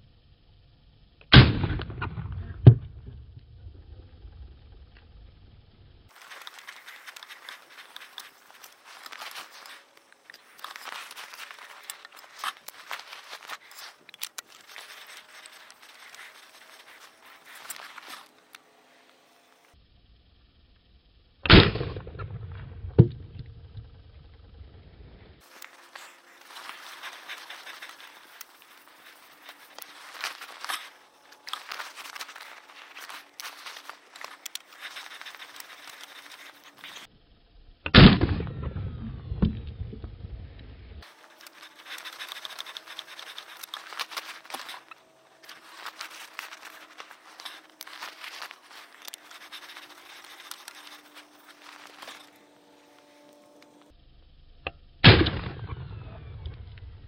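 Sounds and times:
metal parts clicking: 6.1s - 18.3s, 41.0s - 52.3s
handling rustling: 6.1s - 18.6s, 25.4s - 37.1s, 41.0s - 52.4s.

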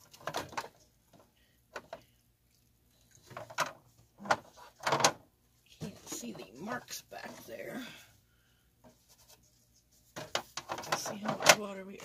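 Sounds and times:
plastic lid clacks and knocks: 10.2s - 11.6s.

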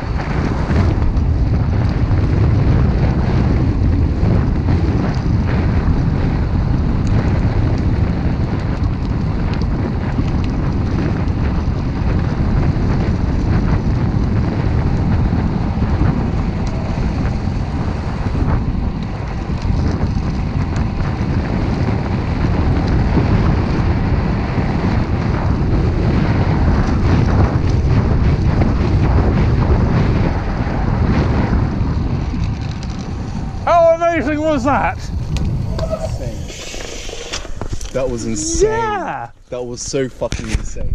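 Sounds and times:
bicycle clicks and rattles: 0.0s - 34.0s, 34.7s - 38.4s
tyres rumbling on rough tarmac: 0.0s - 40.9s
wind buffeting microphone: 0.0s - 40.9s.

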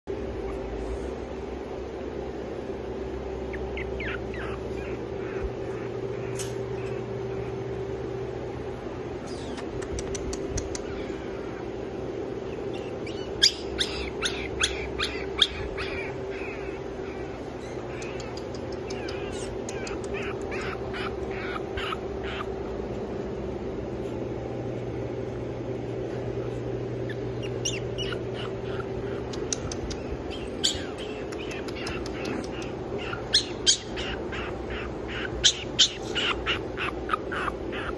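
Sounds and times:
mechanical room hum: 0.0s - 37.9s
sharp click: 6.3s - 6.6s.

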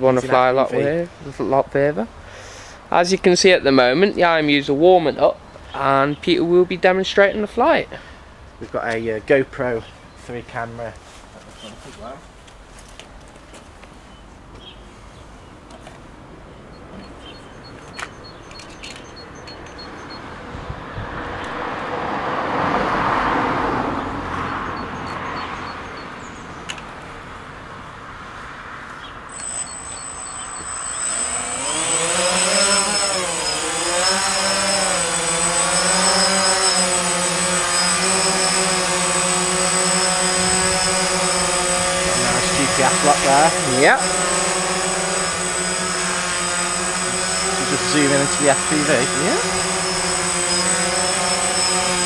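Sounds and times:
drone motors whining: 16.8s - 20.4s, 29.3s - 52.0s.

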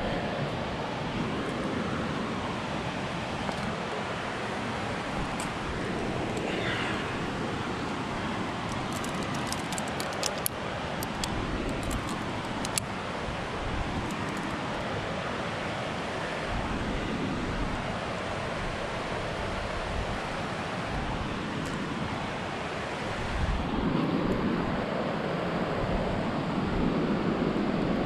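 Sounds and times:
metallic clinks of carabiners: 8.7s - 12.8s
wind on microphone: 16.4s - 28.0s.

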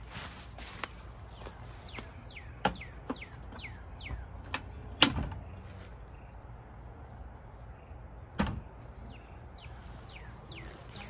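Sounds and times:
low steady hum: 0.0s - 11.0s
bird whistling: 1.9s - 4.3s, 9.6s - 11.0s.

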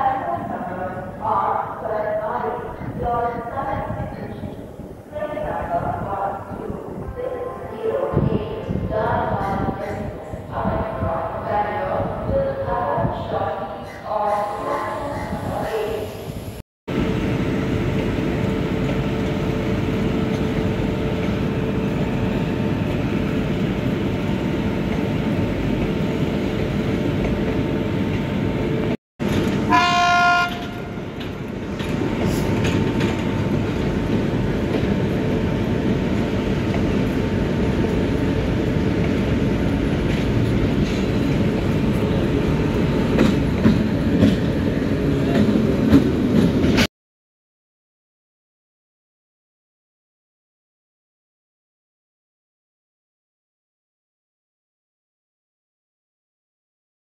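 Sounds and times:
train horn blast: 29.6s - 31.0s.

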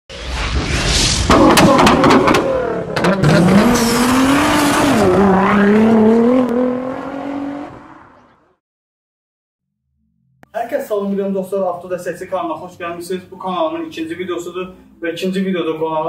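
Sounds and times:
race car engine revving: 1.3s - 8.3s.

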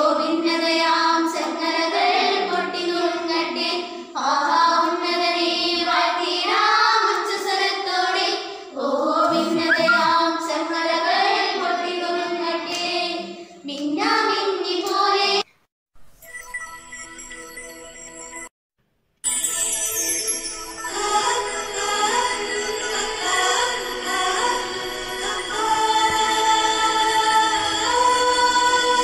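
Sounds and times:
girls singing together: 0.0s - 15.5s, 21.0s - 29.0s
electronic tune: 9.3s - 10.3s, 16.0s - 18.5s.

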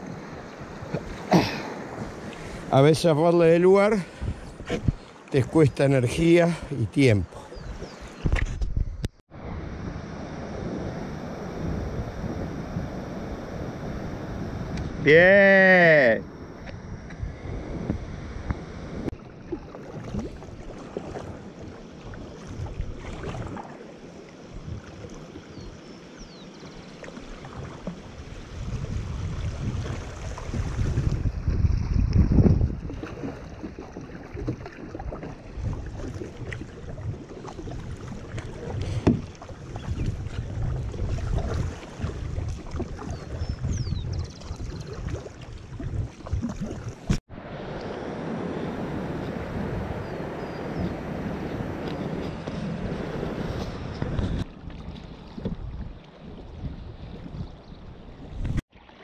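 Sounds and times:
paddle splashing in water: 0.0s - 2.7s, 19.0s - 47.2s, 50.4s - 59.0s
wind buffeting microphone: 3.7s - 6.1s, 7.1s - 15.1s, 16.2s - 23.7s, 27.4s - 58.6s
river water rushing and splashing: 18.2s - 31.4s, 44.4s - 56.3s.

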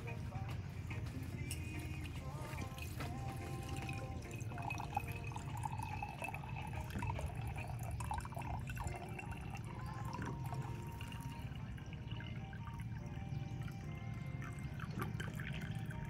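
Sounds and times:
water pouring and splashing: 2.3s - 12.9s, 14.4s - 16.0s.

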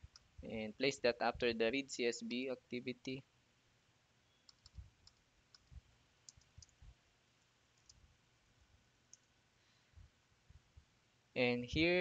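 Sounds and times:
keyboard typing: 4.4s - 6.8s, 7.8s - 8.0s.

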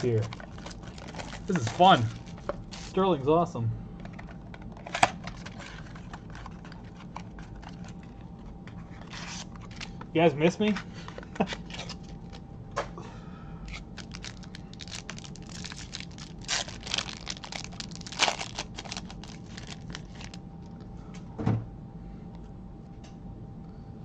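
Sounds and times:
wrapper tearing and crinkling: 0.0s - 3.0s, 11.4s - 12.4s, 13.7s - 20.4s.

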